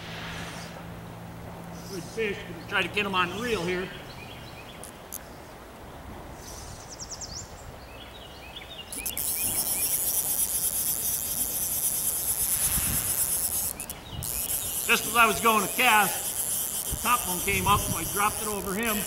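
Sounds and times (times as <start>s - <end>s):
stream-side ambience: 0.0s - 19.0s
fishing reel ratchet buzzing: 4.8s - 5.2s, 8.9s - 19.0s.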